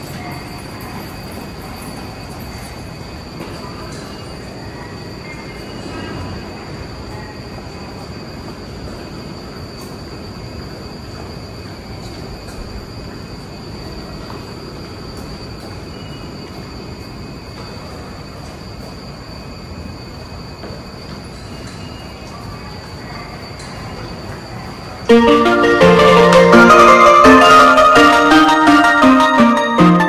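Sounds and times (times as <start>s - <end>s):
high-pitched whine: 25.1s - 30.0s.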